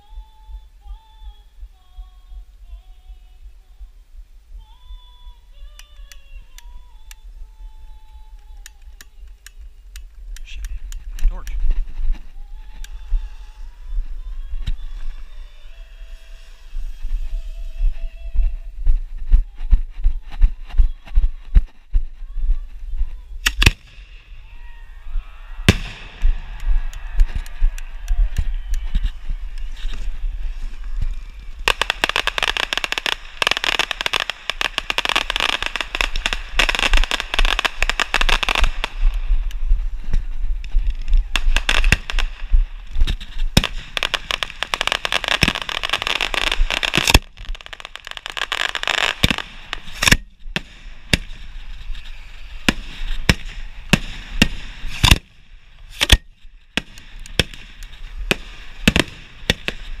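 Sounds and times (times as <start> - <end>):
fireworks cracking and popping: 4.5 - 60.0
fireworks sharp bangs: 25.6 - 39.5, 41.1 - 60.0.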